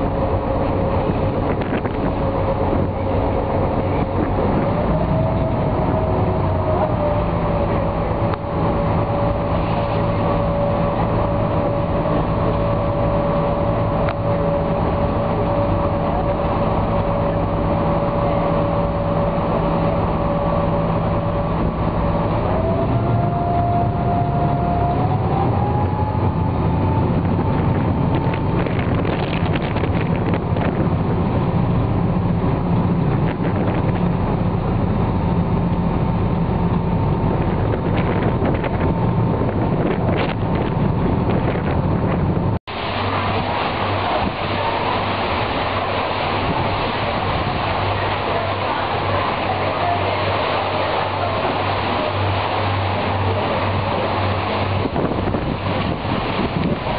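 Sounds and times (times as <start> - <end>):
ferry engine whining drone: 0.0 - 56.9.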